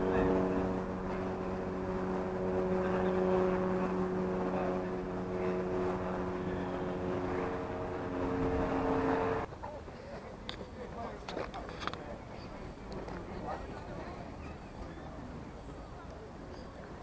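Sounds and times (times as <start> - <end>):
engine drone: 0.0 - 9.5.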